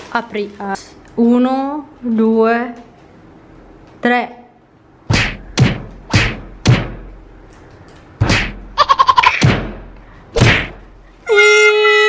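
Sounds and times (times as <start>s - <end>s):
fist knocking on hollow chocolate: 5.1s - 7.1s.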